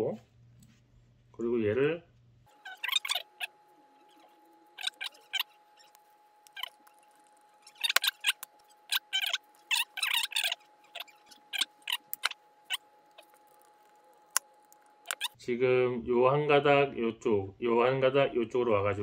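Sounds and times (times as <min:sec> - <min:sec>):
faint steady hum: 0:00.0 - 0:19.0
plastic switch scratching and clicking: 0:04.1 - 0:15.4
screwdriver turning screw: 0:04.1 - 0:15.4.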